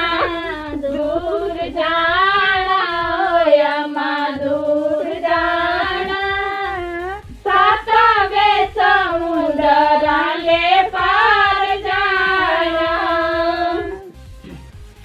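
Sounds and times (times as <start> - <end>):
women singing folk song together: 0.0 - 14.1.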